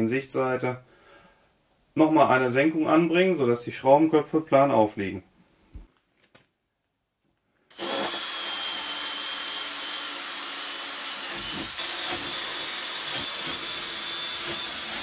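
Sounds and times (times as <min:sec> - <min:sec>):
power drill whining: 0:07.7 - 0:15.0.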